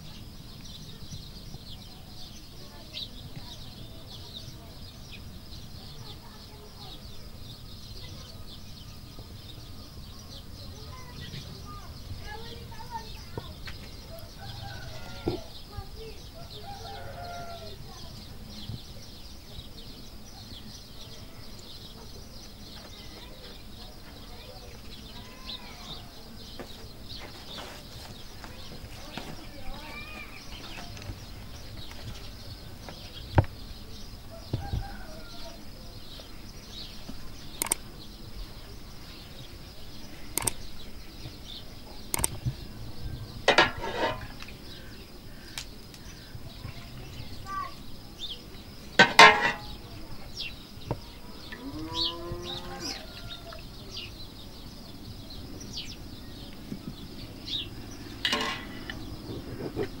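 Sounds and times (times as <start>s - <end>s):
birds chirping: 0.0s - 60.0s
metal dishes clinking: 43.5s - 44.4s, 49.0s - 49.8s, 58.2s - 58.9s
farm animal calling: 51.2s - 53.9s.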